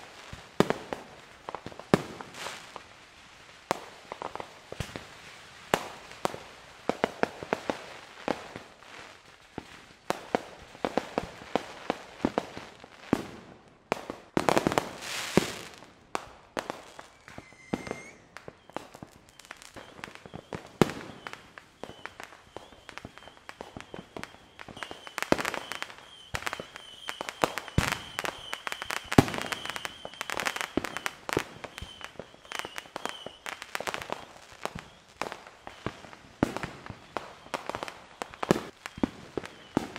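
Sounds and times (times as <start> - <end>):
fireworks popping and banging: 3.6 - 39.9
hissing firework burst: 16.6 - 39.9.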